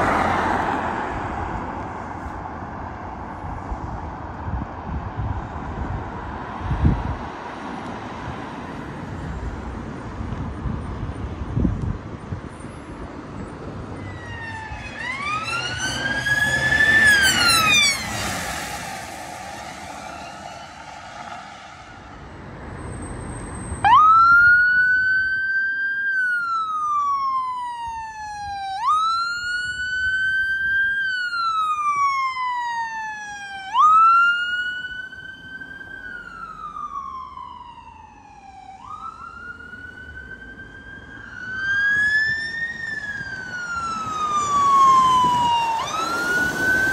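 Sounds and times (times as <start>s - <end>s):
ambulance wail siren: 0.0s - 1.3s, 13.3s - 22.3s, 22.9s - 46.9s
siren sweeping upward: 13.8s - 46.9s.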